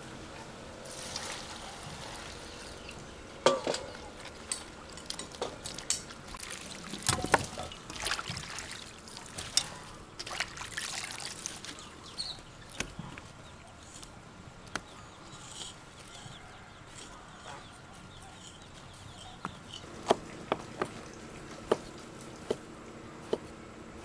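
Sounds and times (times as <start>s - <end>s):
vegetables splashing in water: 5.6s - 11.9s.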